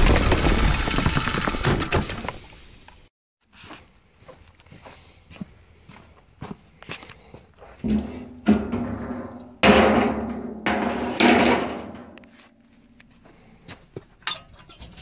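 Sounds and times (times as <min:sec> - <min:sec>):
metal drum lid banging: 0:07.8 - 0:12.3.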